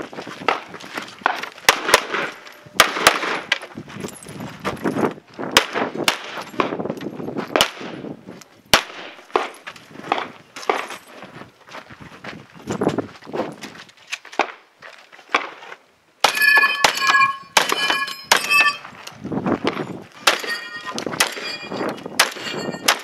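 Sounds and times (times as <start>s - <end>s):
pistol shots: 1.6s - 3.6s, 5.6s - 6.7s, 8.7s - 9.5s, 16.2s - 18.8s, 20.2s - 23.0s.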